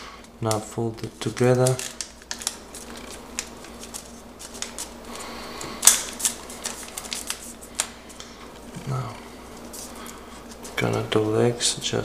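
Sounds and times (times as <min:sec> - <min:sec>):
paper crinkling: 0:00.5 - 0:08.7, 0:09.4 - 0:11.2
paper snap: 0:05.6 - 0:08.3.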